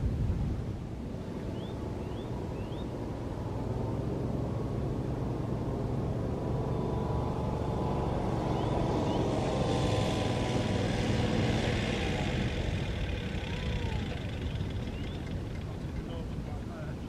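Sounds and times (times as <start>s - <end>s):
distant engine drone: 0.9s - 17.0s.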